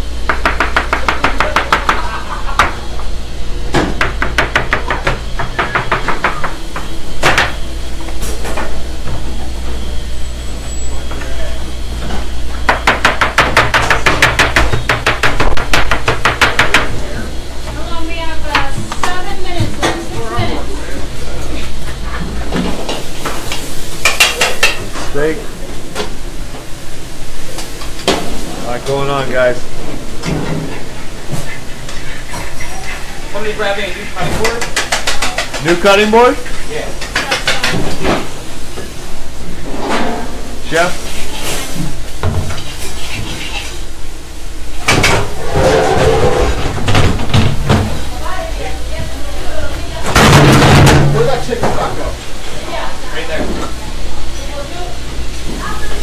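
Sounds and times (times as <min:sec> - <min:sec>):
metal pans and utensils clattering: 0:22.0 - 0:25.3, 0:30.2 - 0:38.4, 0:39.6 - 0:43.9, 0:50.0 - 0:52.0
food sizzling: 0:22.8 - 0:39.7, 0:40.5 - 0:46.3.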